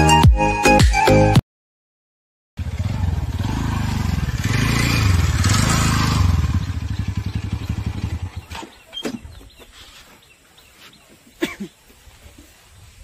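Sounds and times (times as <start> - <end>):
motorbike engine running: 2.6 - 8.6.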